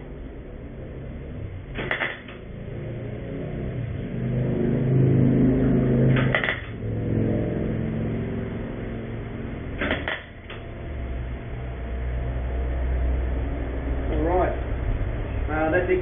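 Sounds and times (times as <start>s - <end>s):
welding arc buzzing and crackling: 6.0s - 6.8s.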